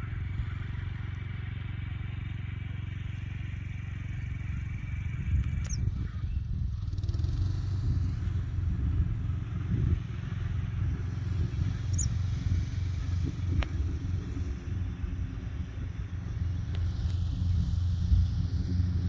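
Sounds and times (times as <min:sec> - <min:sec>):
wind buffeting microphone: 0:04.6 - 0:19.0
high bird chirps: 0:05.6 - 0:06.5, 0:11.8 - 0:12.3.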